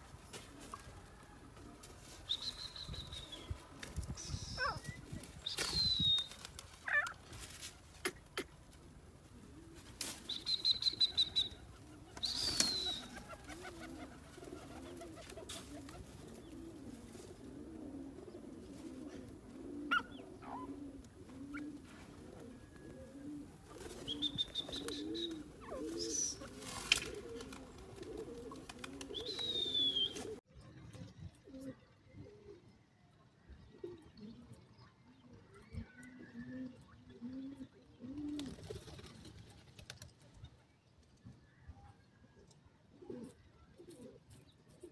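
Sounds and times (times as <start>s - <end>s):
high whistled bird calls: 12.2s - 13.2s, 29.2s - 30.3s.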